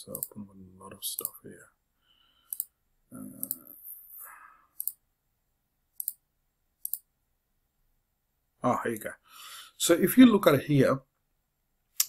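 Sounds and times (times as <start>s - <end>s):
computer mouse clicking: 0.1s - 0.3s, 2.5s - 2.7s, 3.3s - 3.7s, 4.8s - 5.0s, 6.0s - 6.2s, 6.8s - 7.1s.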